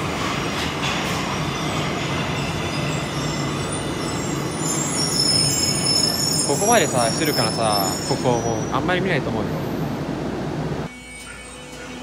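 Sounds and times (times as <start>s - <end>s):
subway train rumbling: 0.0s - 12.0s.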